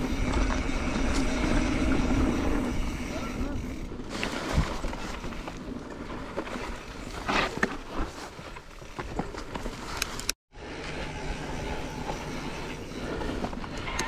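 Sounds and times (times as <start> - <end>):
bike tyres on dirt trail: 0.0 - 14.0
bike clicks and knocks: 4.1 - 10.4, 13.1 - 14.0.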